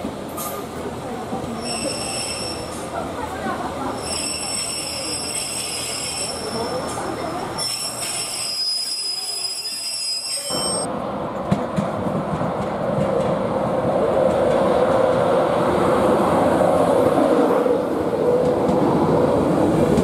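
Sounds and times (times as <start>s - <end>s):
express train approaching: 0.0s - 20.0s
railbus wheel squeal: 1.4s - 3.0s, 3.9s - 10.9s
train rumble: 10.4s - 20.0s.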